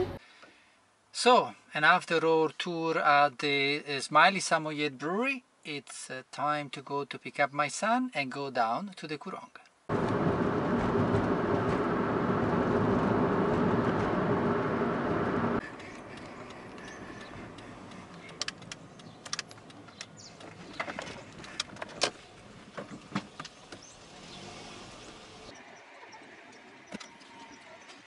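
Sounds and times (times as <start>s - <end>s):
car engine and tyre noise: 9.9s - 28.0s
sharp clicks: 15.8s - 22.1s.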